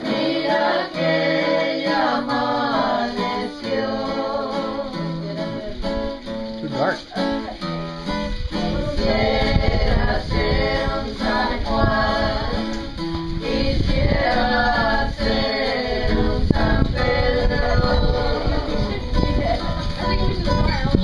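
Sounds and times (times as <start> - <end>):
people singing together: 0.0 - 21.0
strummed acoustic guitar: 0.0 - 21.0.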